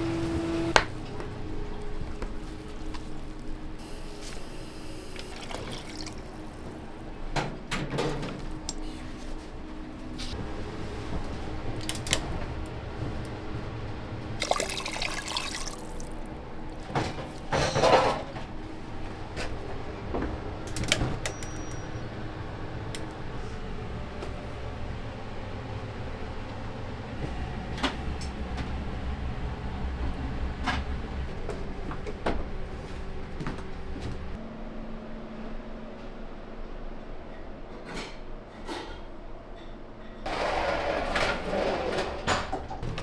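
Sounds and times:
liquid pouring and splashing: 0:05.2 - 0:06.6, 0:14.4 - 0:17.6.

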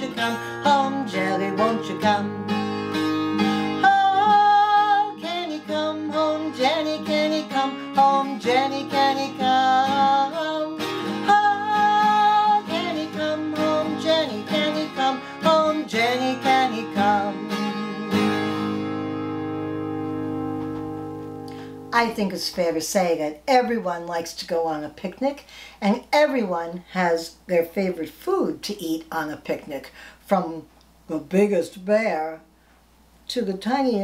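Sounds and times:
woman singing: 0:00.0 - 0:02.4, 0:03.8 - 0:18.1
acoustic guitar strumming: 0:00.0 - 0:22.3.

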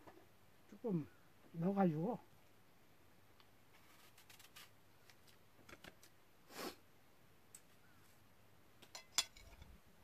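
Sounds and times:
soft rustle: 0:03.6 - 0:06.8.

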